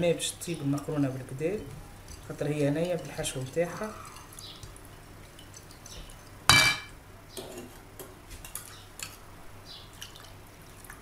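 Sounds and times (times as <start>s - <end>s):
utensils clinking on glass bowl: 6.5s - 7.8s.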